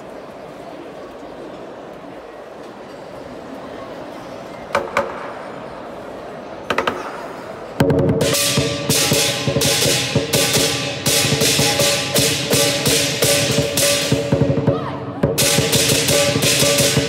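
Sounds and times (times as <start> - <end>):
drum cymbals and gong beat: 8.0 - 17.0
ringing cymbal strikes: 8.3 - 14.5, 15.4 - 17.0.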